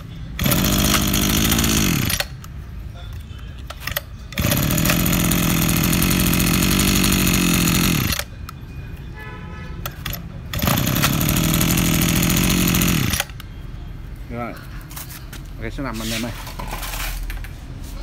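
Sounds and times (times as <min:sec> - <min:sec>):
brush cutter engine running: 0:00.0 - 0:02.5, 0:03.8 - 0:08.3, 0:10.0 - 0:13.4.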